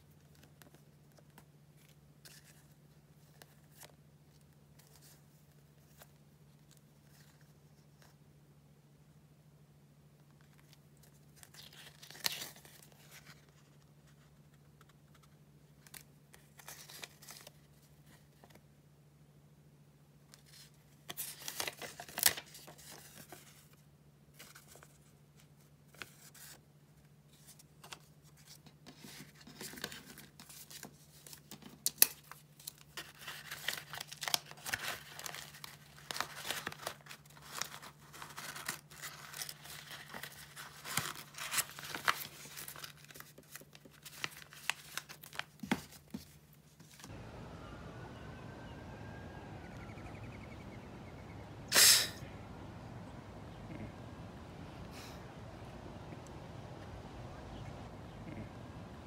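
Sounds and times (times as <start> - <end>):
paper sheets rustling: 32.6 - 47.2
faint low hum: 47.0 - 59.0.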